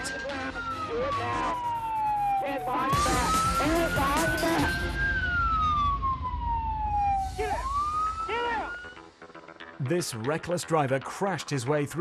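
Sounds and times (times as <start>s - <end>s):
police car siren wailing: 0.0s - 9.1s.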